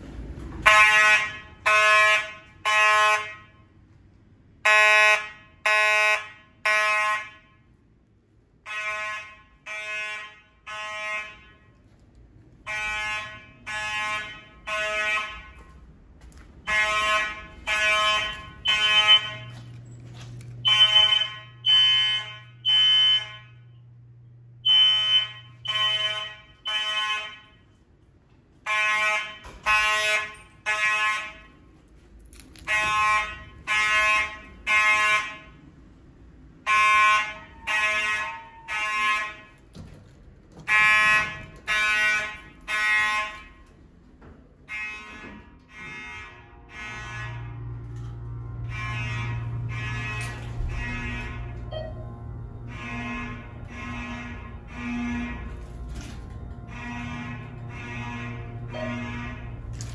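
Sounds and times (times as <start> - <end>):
buzzy fire alarm horn blasts: 0.1 - 59.9.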